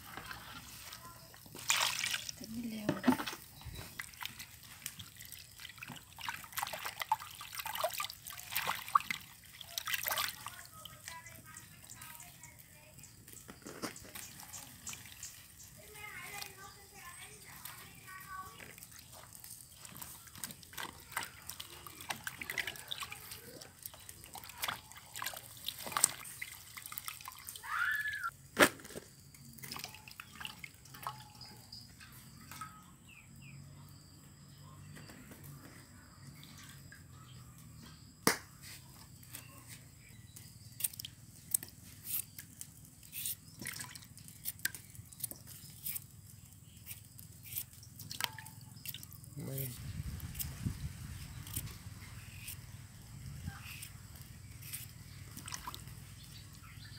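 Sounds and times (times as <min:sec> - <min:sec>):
water dripping: 0:01.3 - 0:28.3, 0:29.3 - 0:32.8, 0:40.3 - 0:56.9
hands splashing in bowl of water: 0:01.6 - 0:03.3, 0:03.9 - 0:10.6, 0:18.7 - 0:28.0, 0:43.5 - 0:44.9, 0:47.9 - 0:49.0, 0:55.2 - 0:56.0.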